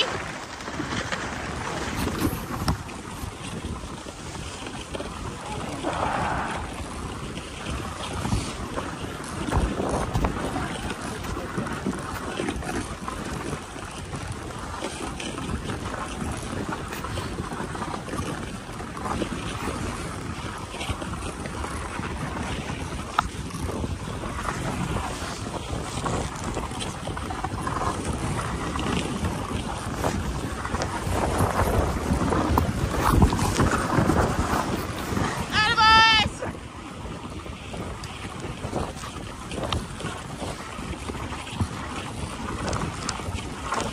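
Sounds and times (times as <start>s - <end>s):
sled runners hissing over snow: 0.0s - 13.6s
wind buffeting microphone: 0.0s - 43.9s.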